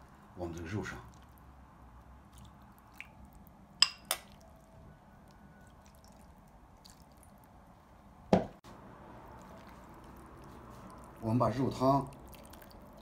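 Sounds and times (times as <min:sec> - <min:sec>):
dull knock: 0:08.3 - 0:08.6.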